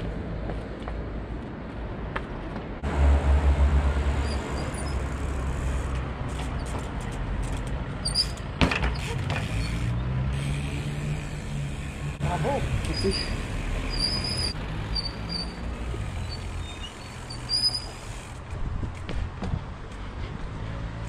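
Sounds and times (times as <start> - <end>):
bike landing thump: 8.6 - 9.5.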